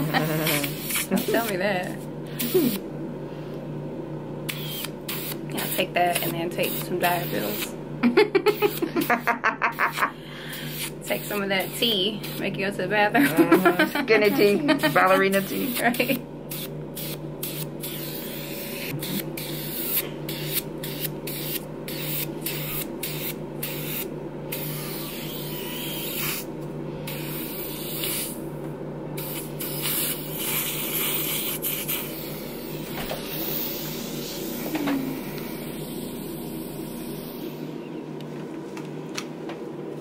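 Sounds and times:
suction wand hissing: 0:00.0 - 0:01.6, 0:08.5 - 0:12.6, 0:14.2 - 0:28.4, 0:29.2 - 0:37.7
low machine hum: 0:00.0 - 0:40.0.

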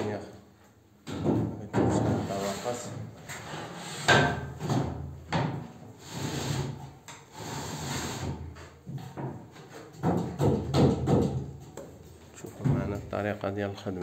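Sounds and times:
wooden battens knocking: 0:08.8 - 0:11.8.

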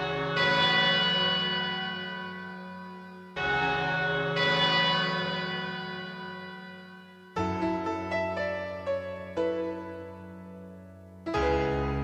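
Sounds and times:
bell-like chimes ringing: 0:00.0 - 0:08.2.

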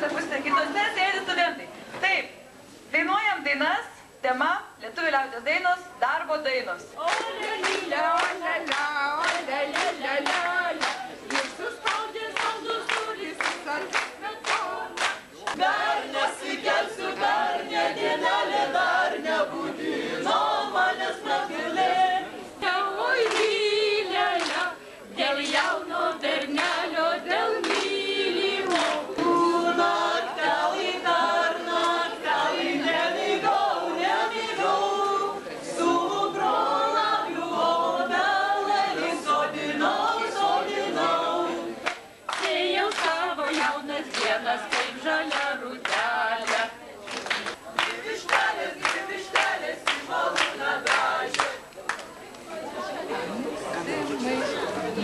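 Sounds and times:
group singing unaccompanied: 0:06.9 - 0:51.7
hand claps: 0:07.1 - 0:15.6, 0:23.2 - 0:23.6, 0:24.4 - 0:24.7, 0:26.5 - 0:26.8, 0:27.6 - 0:28.0, 0:28.6 - 0:29.4, 0:41.8 - 0:52.4.

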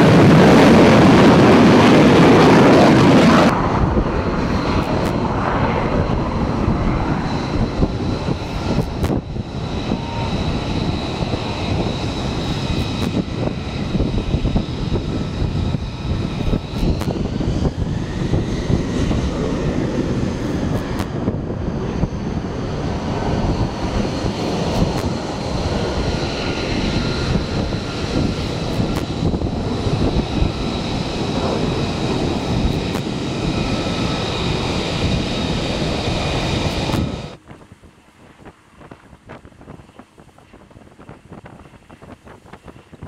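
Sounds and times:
jet engine roaring with whine: 0:00.0 - 0:43.0.

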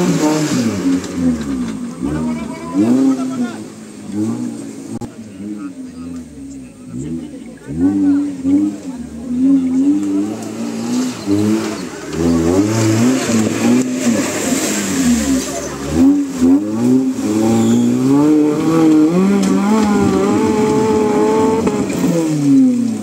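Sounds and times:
engine revving: 0:00.0 - 0:23.0
mud and water splashing: 0:00.0 - 0:23.0.

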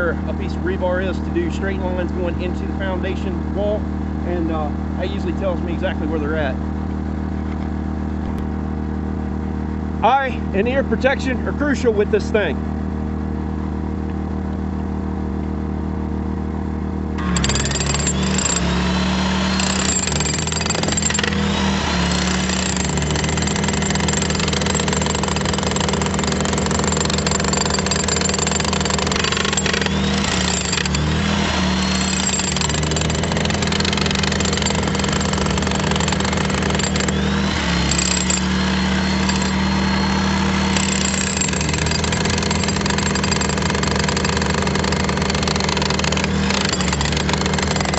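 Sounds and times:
breaker hammer on concrete: 0:17.2 - 0:47.9
portable generator running: 0:17.2 - 0:47.9.

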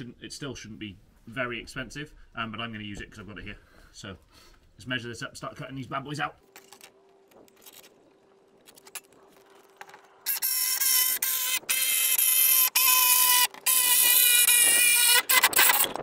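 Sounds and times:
jigsaw cutting board: 0:10.3 - 0:16.0.

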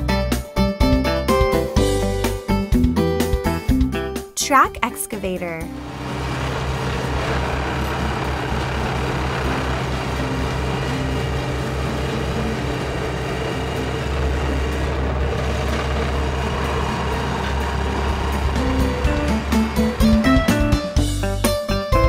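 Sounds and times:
diesel engine running: 0:05.6 - 0:21.9.

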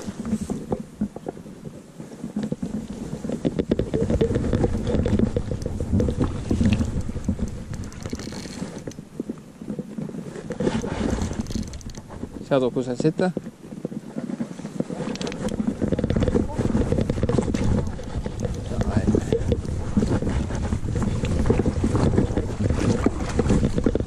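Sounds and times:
wind buffeting microphone: 0:00.0 - 0:24.0
small clicks: 0:03.4 - 0:09.0, 0:15.0 - 0:18.9.

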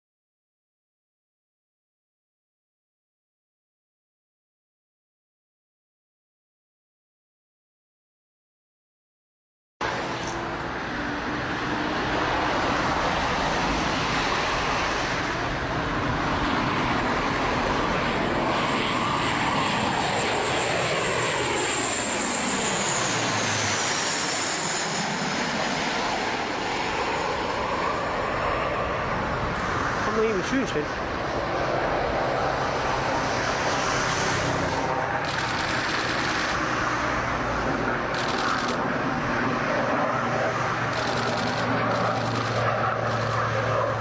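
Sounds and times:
jet aircraft passing overhead: 0:09.8 - 0:44.0.

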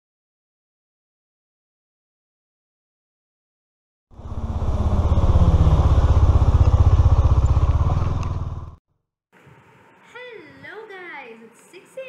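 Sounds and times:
motorcycle engine running: 0:04.1 - 0:08.8.

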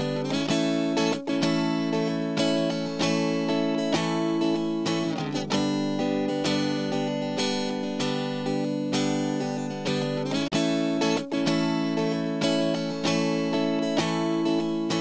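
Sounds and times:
acoustic guitar strumming chords: 0:00.0 - 0:15.0.

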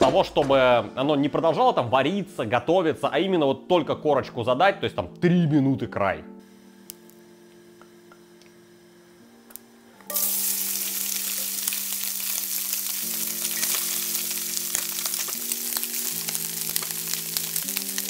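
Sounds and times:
food sizzling in hot skillet: 0:10.1 - 0:18.0
crackling oil pops: 0:14.6 - 0:18.0.

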